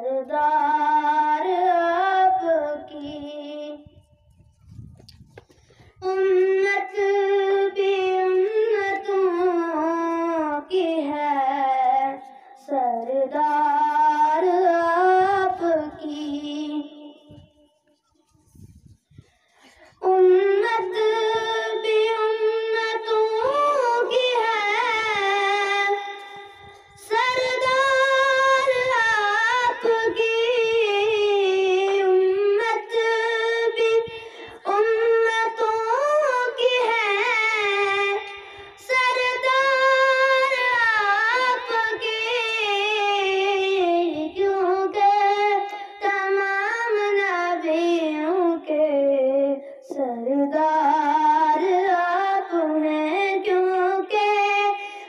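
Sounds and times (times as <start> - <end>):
boy singing solo: 20.0 - 26.2, 26.9 - 54.9.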